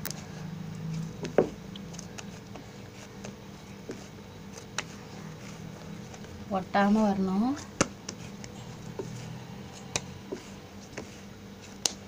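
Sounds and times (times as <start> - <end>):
steady low hum: 0.0 - 12.0
dough slapping on stone: 2.2 - 6.3, 6.9 - 12.0.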